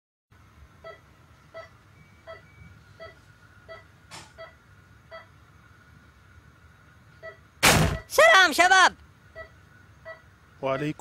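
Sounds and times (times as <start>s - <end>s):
faint steady tone: 0.4s - 8.1s, 9.2s - 11.0s
heart monitor beeping: 0.8s - 5.3s, 9.3s - 11.0s.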